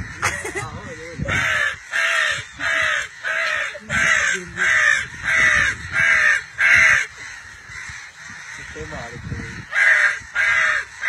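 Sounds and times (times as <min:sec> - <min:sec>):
boy imitating crow caws: 0:00.0 - 0:08.7.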